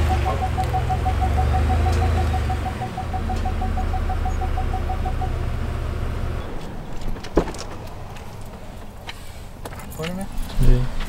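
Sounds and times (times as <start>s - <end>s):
electronic warning chime beeping: 0.0s - 5.8s
pickup truck engine idling: 0.0s - 6.6s.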